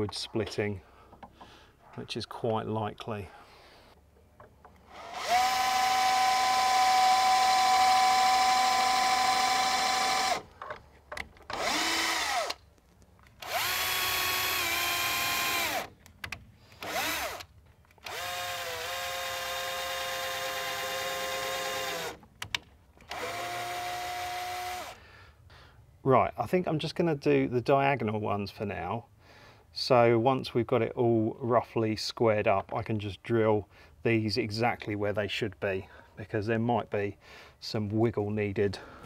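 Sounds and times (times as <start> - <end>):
cordless drill boring into wood: 4.9 - 10.5, 11.5 - 12.6, 13.4 - 15.9, 16.8 - 22.2, 23.1 - 25.0.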